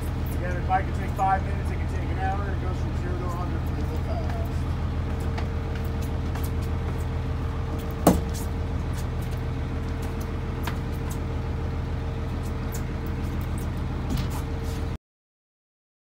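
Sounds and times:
boat engine humming: 0:00.0 - 0:15.0
sharp knock: 0:08.0 - 0:08.4.

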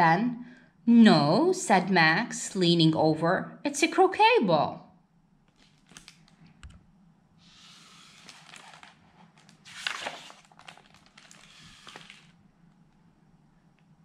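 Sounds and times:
book pages rustling: 0:05.5 - 0:06.8, 0:07.4 - 0:12.4.

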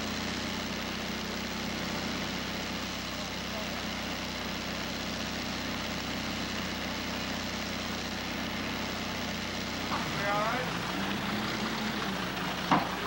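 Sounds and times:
low mechanical drone: 0:08.1 - 0:13.0.

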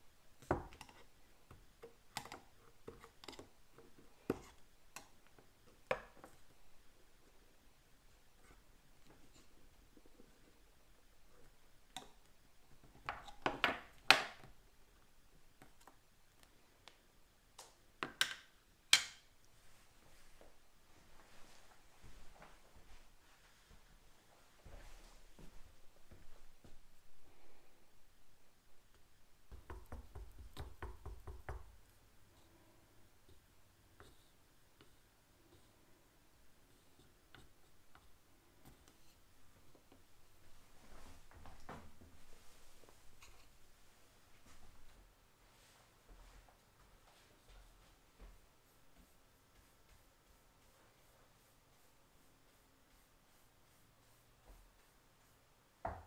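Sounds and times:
faint paint stirring: 0:00.2 - 0:17.0, 0:28.7 - 0:56.0.

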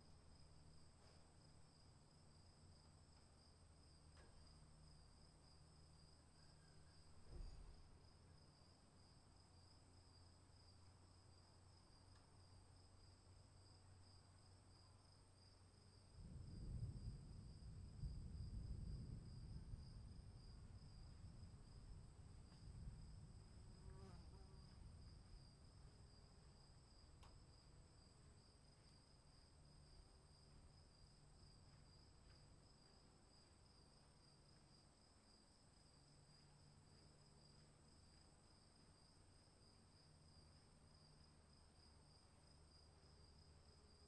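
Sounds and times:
distant thunder rumble: 0:16.2 - 0:23.9.

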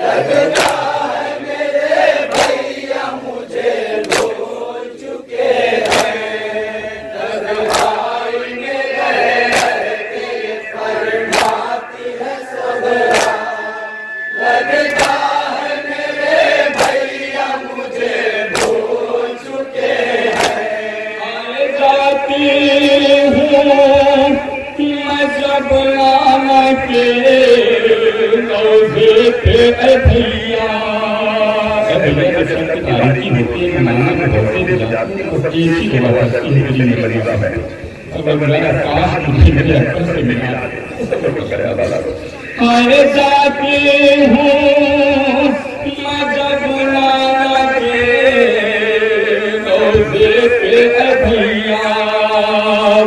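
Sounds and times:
men chanting a lament: 0:00.0 - 0:53.0
chest-beating strikes: 0:09.3 - 0:17.4.

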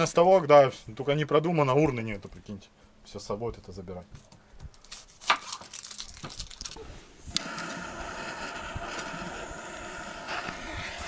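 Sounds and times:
kindling fire hissing: 0:06.8 - 0:11.0.

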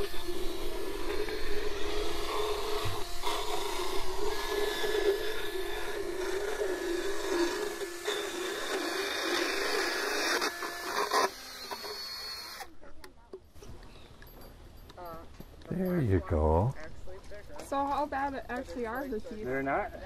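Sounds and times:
dental float grinding teeth: 0:00.0 - 0:12.6.

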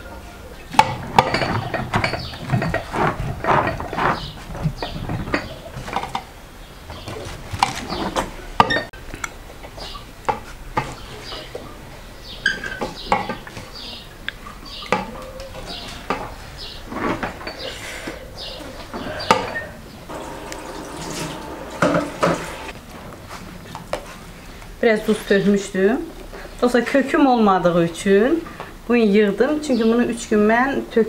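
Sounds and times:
clinks against glass jar and bowl: 0:00.8 - 0:02.9.

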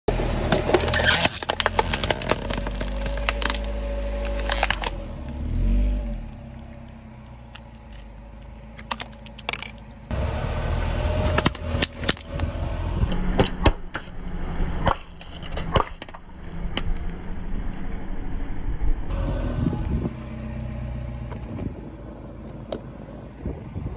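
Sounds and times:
car running: 0:00.1 - 0:23.9
plastic cracking and crunching: 0:00.5 - 0:05.0, 0:08.8 - 0:09.9.

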